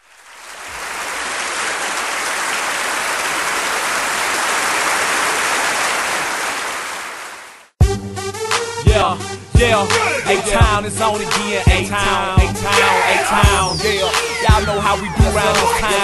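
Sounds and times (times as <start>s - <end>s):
audience applauding: 0.0s - 7.7s.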